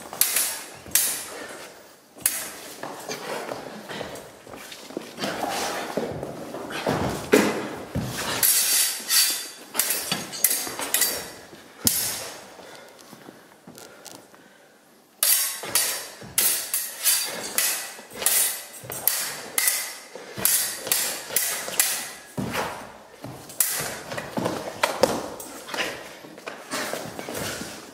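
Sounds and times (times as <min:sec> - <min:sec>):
rapier blades clashing: 0:00.0 - 0:03.6, 0:07.5 - 0:12.4, 0:15.2 - 0:26.0.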